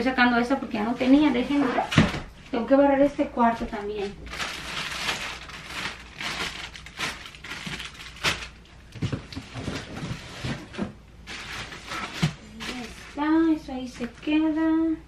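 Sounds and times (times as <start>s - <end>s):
crinkling of plastic packaging: 3.7s - 14.6s.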